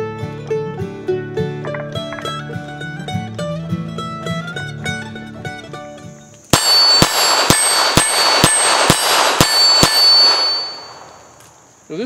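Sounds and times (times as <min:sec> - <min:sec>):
steel plate target ringing: 0:06.5 - 0:11.7
revolver gunshots: 0:06.5 - 0:11.8.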